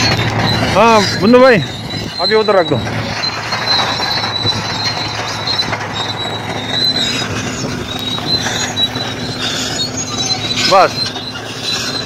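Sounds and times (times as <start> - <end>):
high metallic squeal: 0.0 - 12.0.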